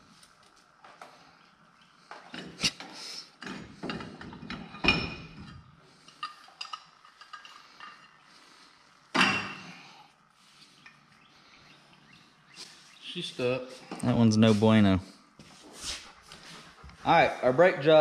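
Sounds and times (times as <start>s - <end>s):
metal tools clanking: 3.4s - 8.4s, 9.1s - 9.8s.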